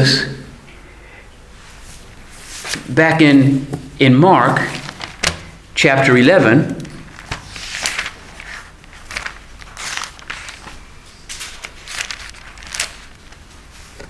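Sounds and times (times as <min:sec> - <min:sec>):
paper rustling: 0:02.4 - 0:03.0, 0:04.4 - 0:05.6, 0:06.8 - 0:14.0
pages turning: 0:02.5 - 0:03.0, 0:04.5 - 0:05.5, 0:06.8 - 0:14.0.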